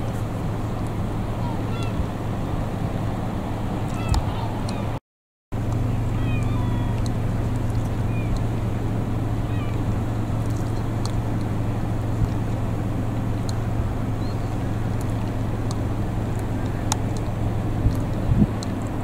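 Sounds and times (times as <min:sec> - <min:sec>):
gulls mewing: 0:00.0 - 0:05.0, 0:05.7 - 0:19.0
steady low hum: 0:05.6 - 0:19.0
faint clicks: 0:05.7 - 0:08.5, 0:10.4 - 0:11.6, 0:13.4 - 0:19.0.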